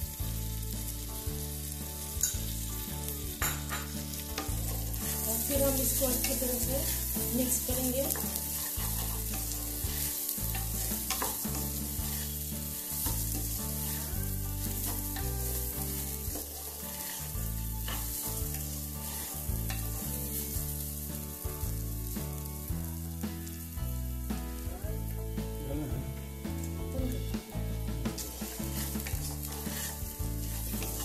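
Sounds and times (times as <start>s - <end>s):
background music bass line: 0.0s - 31.0s
rice sizzling in ghee: 0.0s - 31.0s
wooden spatula scraping pot: 0.3s - 21.6s, 26.0s - 31.0s.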